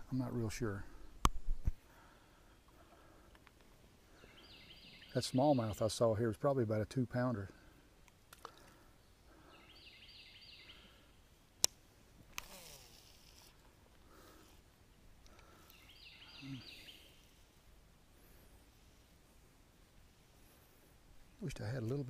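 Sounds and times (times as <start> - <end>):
songbird singing: 2.4 - 11.8, 14.1 - 18.8, 20.4 - 22.0
fishing reel spool whirring: 12.4 - 13.6.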